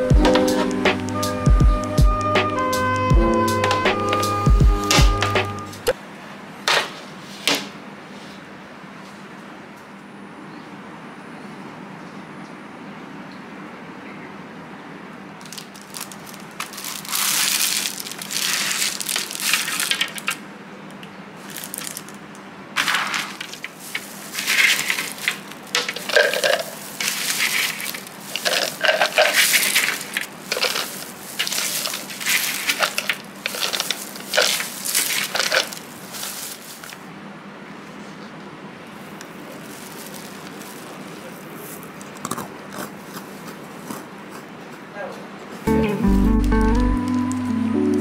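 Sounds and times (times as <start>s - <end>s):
plastic bag crinkling: 15.4s - 20.4s, 21.4s - 37.0s, 39.0s - 42.2s
cookies clattering into plastic jar: 15.5s - 20.4s, 22.8s - 36.9s.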